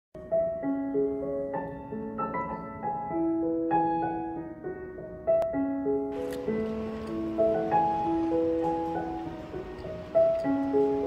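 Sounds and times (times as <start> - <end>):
gentle piano music: 0.2 - 11.0.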